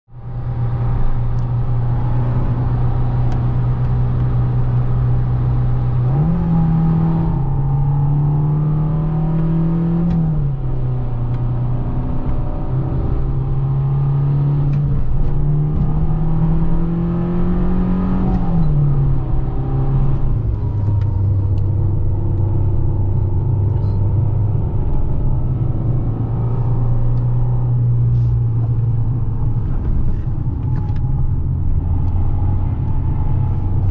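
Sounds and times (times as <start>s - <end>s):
road and tyre rumble: 0.1s - 33.9s
car engine from inside cabin: 0.2s - 33.9s.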